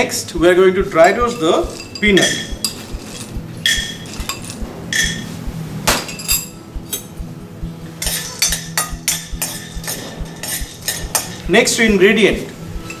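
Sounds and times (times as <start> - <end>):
metal spoon clinking on glass bowl: 1.0 - 5.3, 8.0 - 11.5.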